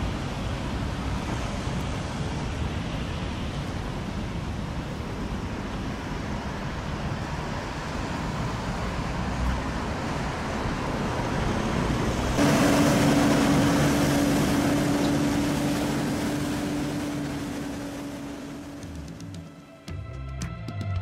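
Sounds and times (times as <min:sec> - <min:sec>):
passing street traffic: 0:00.0 - 0:19.8.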